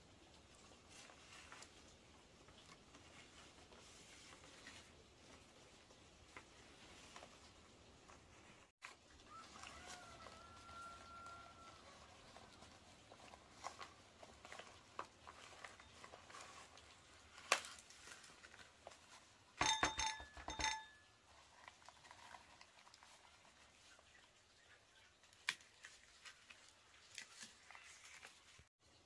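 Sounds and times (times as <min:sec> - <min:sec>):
small clicks and rustles: 0:00.2 - 0:19.6, 0:21.2 - 0:24.4, 0:25.2 - 0:28.7
metal kitchenware clinks: 0:19.6 - 0:21.2.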